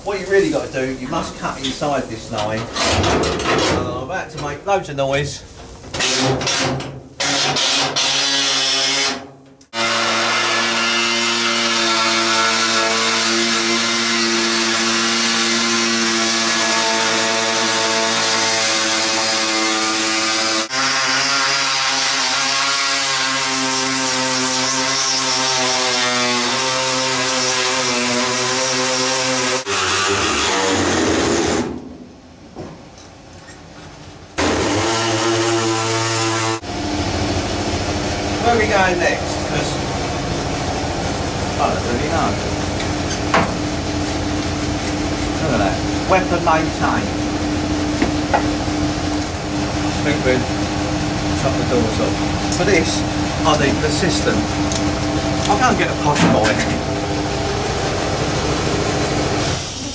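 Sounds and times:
air saw cutting metal: 6.0 - 31.7, 34.4 - 36.7, 51.4 - 59.9.

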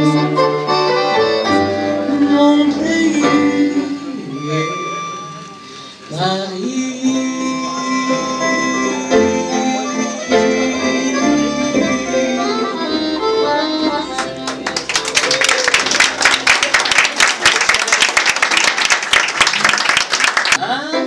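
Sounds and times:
small live band with double bass: 0.0 - 17.9
audience applause: 14.2 - 20.6.

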